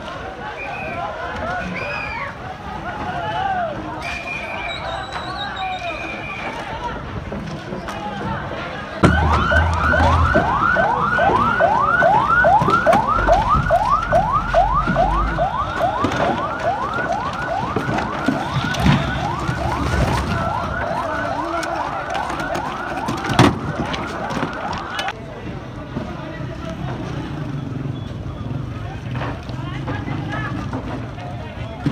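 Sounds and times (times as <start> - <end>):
siren yelping: 9.0 - 25.1.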